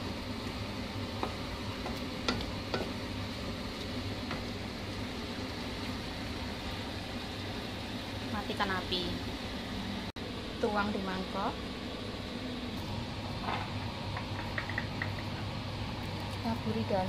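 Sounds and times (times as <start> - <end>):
wooden spatula clicking on pan: 1.2 - 3.0, 14.2 - 15.3.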